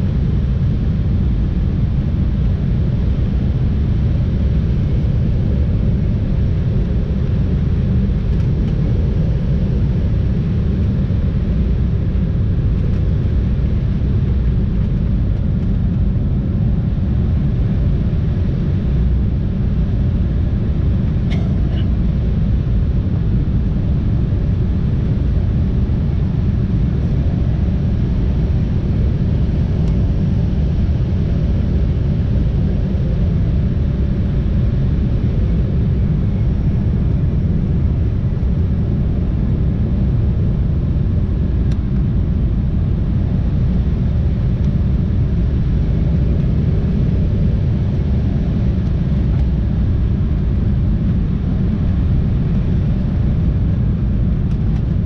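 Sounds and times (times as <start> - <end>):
jet engine rumble in cabin: 0.0 - 55.0.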